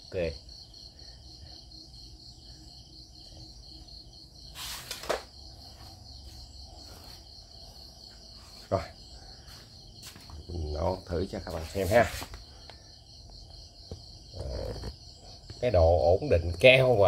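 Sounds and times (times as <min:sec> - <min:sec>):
insect chirring: 0:00.0 - 0:17.0
rustle: 0:04.5 - 0:05.2.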